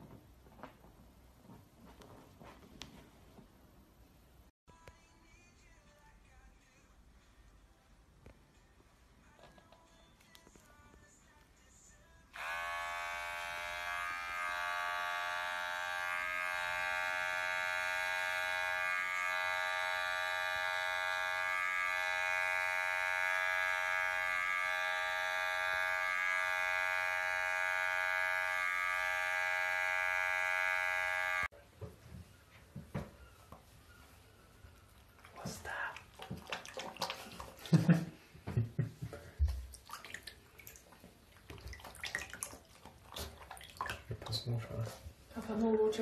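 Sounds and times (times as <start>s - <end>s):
electric hair clippers buzzing: 12.3s - 31.5s.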